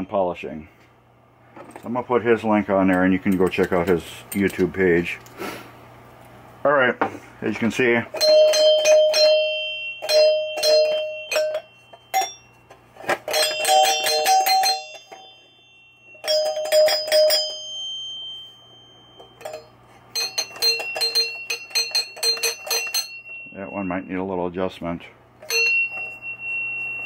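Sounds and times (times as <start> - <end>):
pinball chimes ringing: 8.2 - 27.0.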